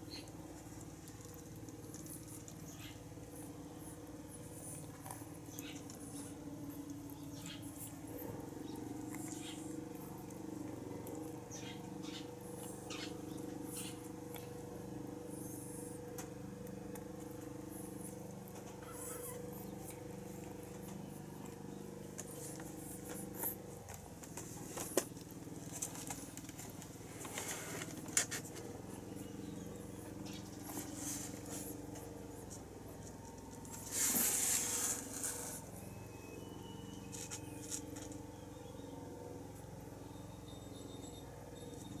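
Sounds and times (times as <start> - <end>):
steady low hum: 0.0 - 42.0
faint rustles and clicks: 15.4 - 36.0, 36.9 - 38.3
scraping rustle: 22.2 - 28.7, 30.6 - 31.9, 32.5 - 35.8.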